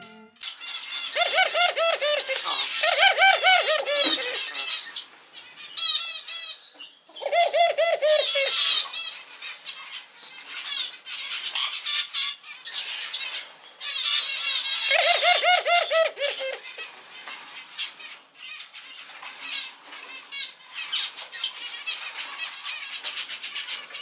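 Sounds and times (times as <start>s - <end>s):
dove laughing call: 1.1s - 4.7s, 7.2s - 8.8s, 14.9s - 16.8s.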